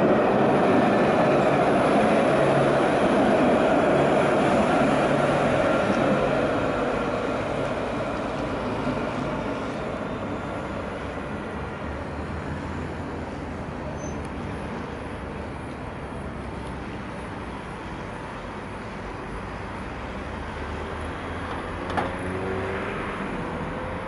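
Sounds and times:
city traffic hum: 0:00.0 - 0:24.0
tram running and slowing: 0:00.0 - 0:24.0
brief high squeak: 0:13.9 - 0:14.3.

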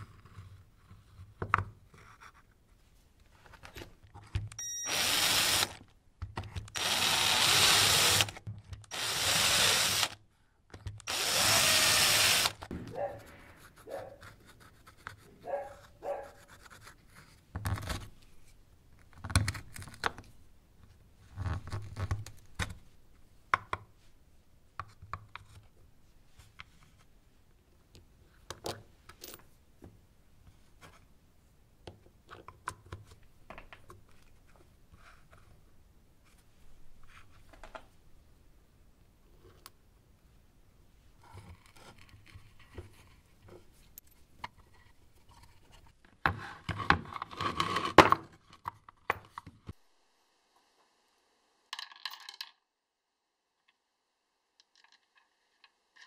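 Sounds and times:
electric drill boring through plastic: 0:04.6 - 0:05.8, 0:06.7 - 0:10.2, 0:11.0 - 0:12.7.

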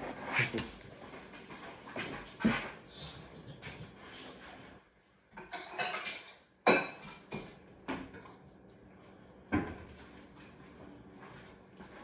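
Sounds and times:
kitchenware clattering knocks: 0:05.4 - 0:08.1.

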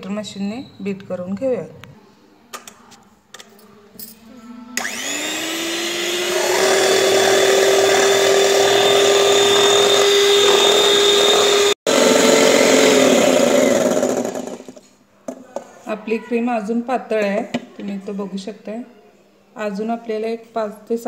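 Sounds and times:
beaters whipping cream in steel bowl: 0:04.8 - 0:14.8
electric hand mixer whining: 0:04.8 - 0:14.8.

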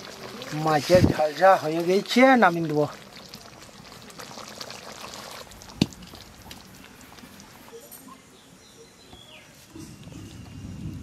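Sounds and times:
sizzle: 0:00.0 - 0:07.9.

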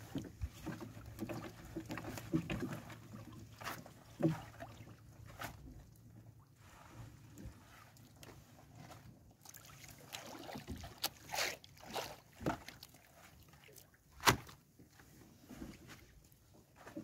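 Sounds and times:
wet net splashing and dripping: 0:00.7 - 0:05.6, 0:09.4 - 0:14.6.

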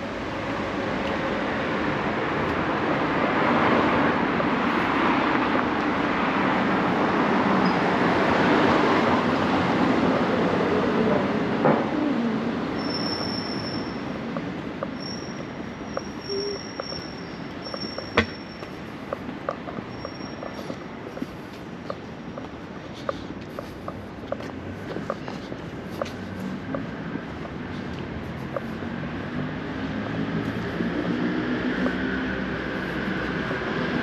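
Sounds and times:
footsteps on stone pavement: 0:00.0 - 0:34.0.

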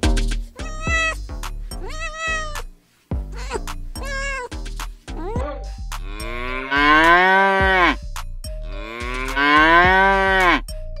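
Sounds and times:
background music with beat: 0:00.0 - 0:11.0
cat meow: 0:00.6 - 0:01.2, 0:01.8 - 0:02.6, 0:03.4 - 0:04.5
cow mooing: 0:06.1 - 0:08.0, 0:08.7 - 0:10.6.

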